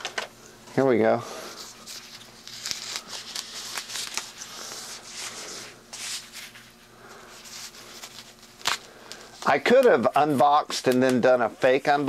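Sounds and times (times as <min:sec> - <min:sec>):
wrap crinkling and rustling: 0:01.8 - 0:05.2.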